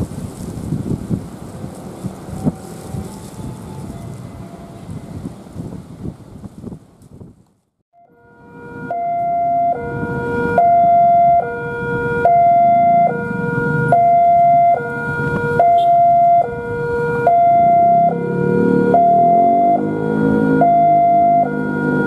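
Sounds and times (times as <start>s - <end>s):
two-tone siren: 1.8s - 5.4s, 7.9s - 22.0s.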